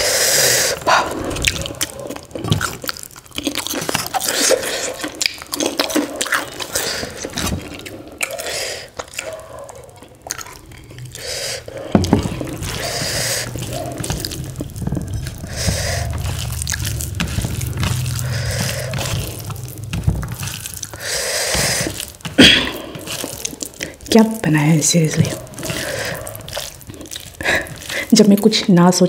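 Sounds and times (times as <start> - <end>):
chewing: 0.0 - 29.0
low hum: 10.3 - 28.1
fingers squishing rice on a plate: 25.3 - 28.0.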